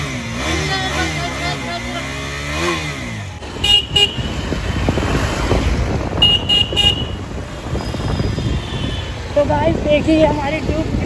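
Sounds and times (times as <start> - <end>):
motorcycle engine revving: 0.0 - 11.0
street traffic noise: 0.0 - 11.0
short horn beeps: 6.2 - 7.2.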